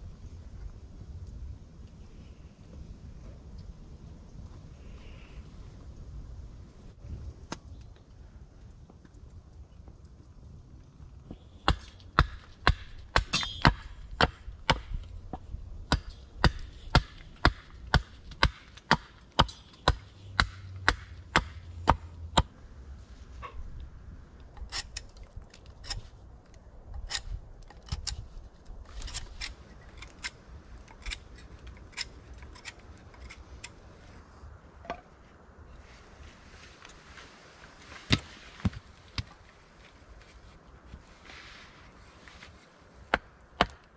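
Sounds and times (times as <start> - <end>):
chopping wood: 15.9 - 22.5, 43.1 - 43.8.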